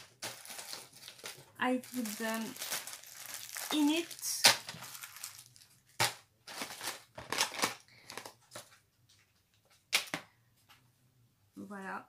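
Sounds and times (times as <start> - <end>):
plastic bags crinkling: 0.0 - 8.7.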